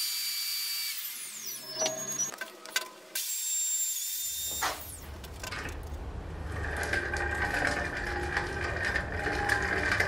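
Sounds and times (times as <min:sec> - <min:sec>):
router whining: 0:00.0 - 0:02.3
low hum: 0:04.8 - 0:10.0.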